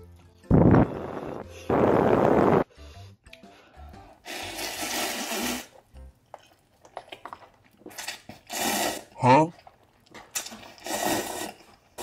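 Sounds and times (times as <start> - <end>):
slurping noodles: 4.2 - 5.9, 7.9 - 9.8, 10.4 - 12.0
soft chewing: 6.0 - 8.5, 9.5 - 12.0.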